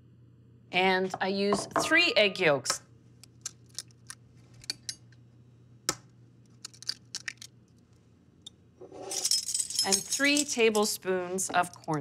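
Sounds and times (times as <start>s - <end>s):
eggshell cracking: 6.5s - 7.6s
eggshells clicking and tapping: 6.6s - 7.5s.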